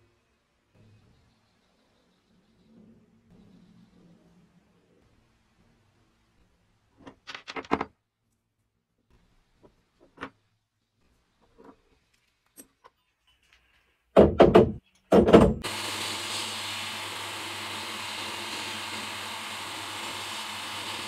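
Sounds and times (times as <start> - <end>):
sandblaster hissing: 15.6 - 21.0.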